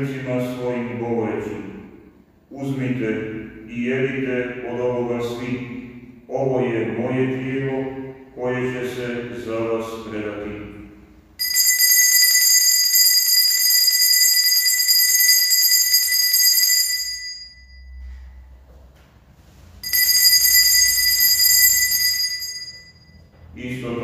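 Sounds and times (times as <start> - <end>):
bells jingling: 11.4 - 18.1, 19.8 - 23.3.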